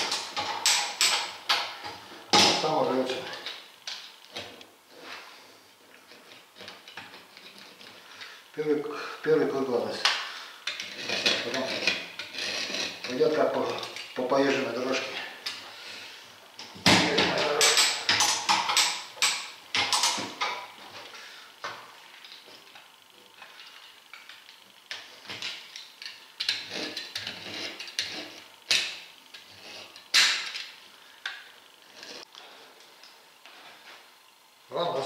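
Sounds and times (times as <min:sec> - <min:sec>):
sharp scrapes and clicks: 0:24.9 - 0:30.7.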